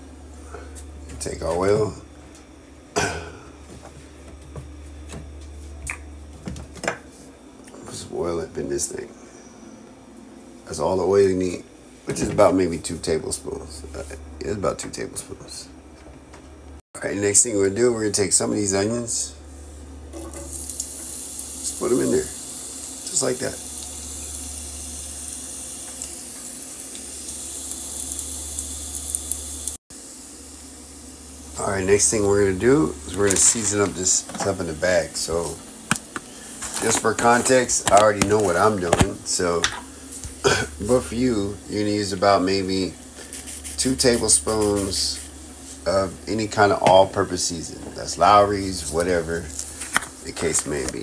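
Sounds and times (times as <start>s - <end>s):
steady low hum: 0.0s - 51.0s
onions sizzling in hot oil: 20.3s - 34.4s
plastic bottle being handled: 35.9s - 39.2s
oil popping and crackling: 35.9s - 40.9s.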